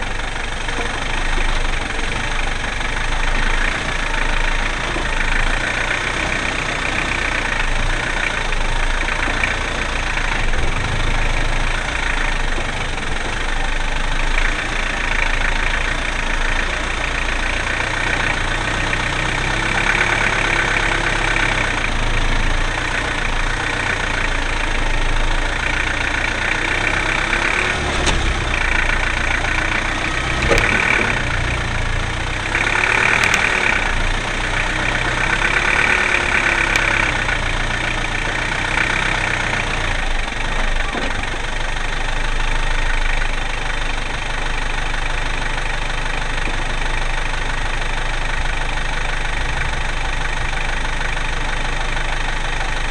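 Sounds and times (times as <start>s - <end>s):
off-road vehicle engine running: 0.0s - 52.9s
vehicle body knocks and rattles: 30.3s - 31.6s.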